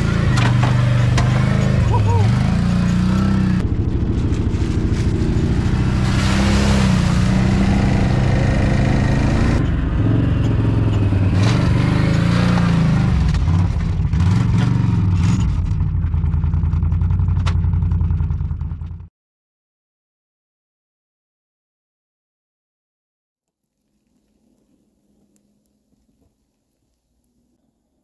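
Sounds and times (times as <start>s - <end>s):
atv engine revving: 0.0s - 19.0s.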